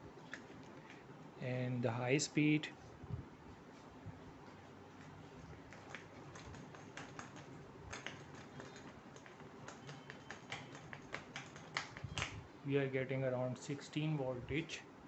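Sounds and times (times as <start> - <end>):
faint clicking and tapping: 3.2 - 12.4.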